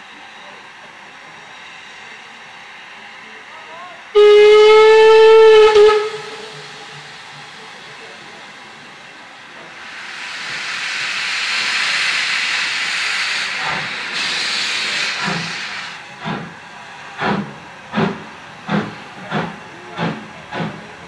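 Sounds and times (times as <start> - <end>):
steam locomotive exhaust chuffs: 4.2 - 21.0
steam hissing: 5.6 - 21.0.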